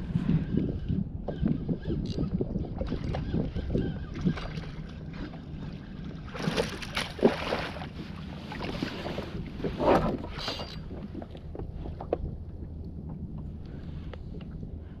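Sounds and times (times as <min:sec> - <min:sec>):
wind buffeting microphone: 0:00.0 - 0:15.0
water washing against kayak hull: 0:06.2 - 0:14.4.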